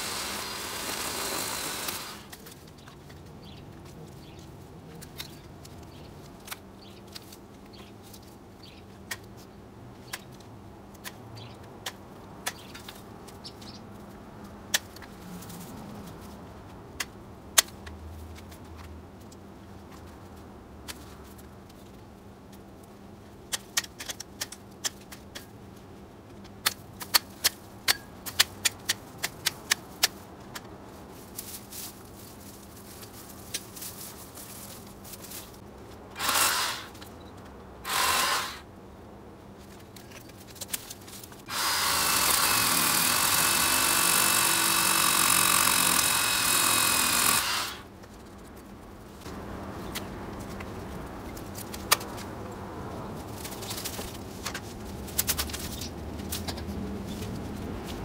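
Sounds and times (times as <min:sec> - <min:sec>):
cordless power tool whining: 0:00.0 - 0:02.3, 0:36.2 - 0:37.0, 0:37.9 - 0:38.6, 0:41.5 - 0:47.9.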